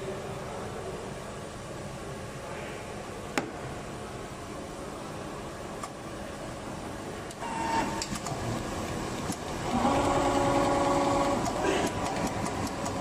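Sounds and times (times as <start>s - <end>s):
mechanical background hum: 0.0s - 13.0s
motors starting with clicks: 7.3s - 13.0s
sewing machine stitching: 9.3s - 13.0s.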